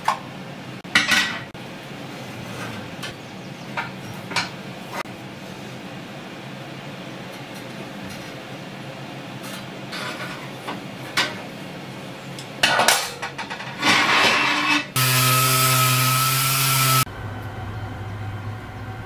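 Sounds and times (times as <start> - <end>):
orbital sander running: 15.0 - 17.1.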